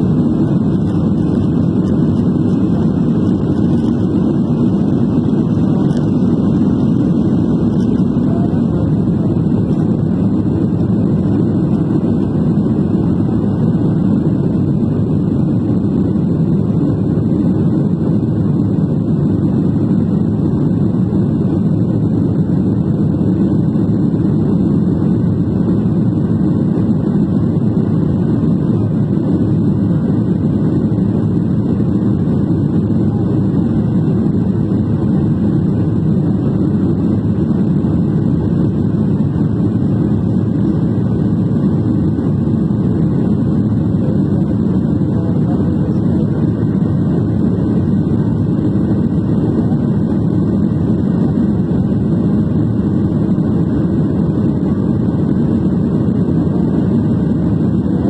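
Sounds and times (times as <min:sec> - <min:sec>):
airplane cabin engine noise: 0:00.0 - 0:58.0.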